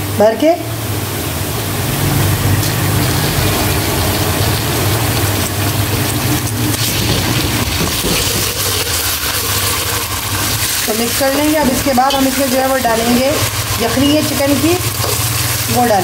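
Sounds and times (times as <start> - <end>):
onions sizzling in hot oil: 0.0 - 16.0
spoon stirring and scraping pot: 14.8 - 15.7.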